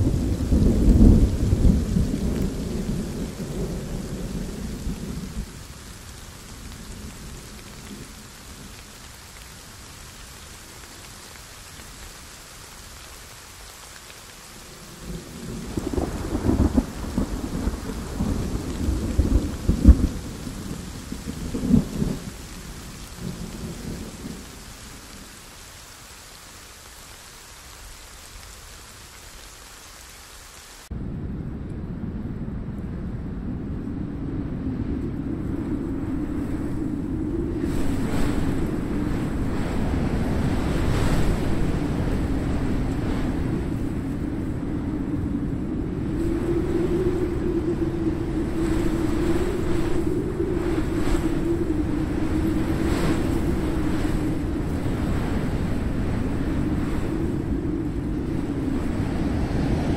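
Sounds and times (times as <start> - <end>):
rolling thunder: 0.0 - 8.8, 14.8 - 25.2, 30.9 - 59.9
heavy rain hiss: 0.0 - 30.9, 35.3 - 59.9
steady low rumble: 30.9 - 46.0.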